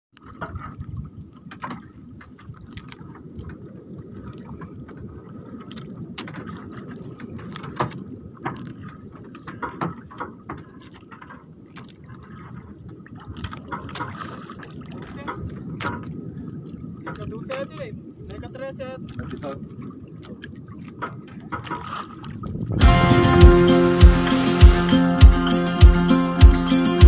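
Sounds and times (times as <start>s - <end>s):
sharp splashes and knocks: 0.1s - 17.7s, 19.1s - 27.0s
water lapping around boat: 0.1s - 27.0s
low rumble: 22.4s - 26.0s.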